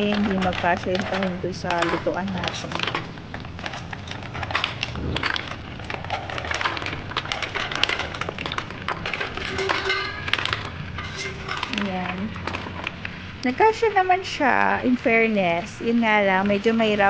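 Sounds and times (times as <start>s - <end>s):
shells clacking on metal bowl: 0.0s - 13.1s
mussel shells clicking: 0.0s - 17.0s.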